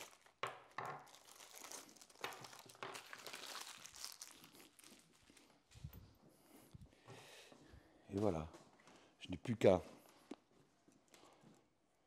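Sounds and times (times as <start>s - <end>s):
plastic packaging crinkling: 0.0s - 5.7s.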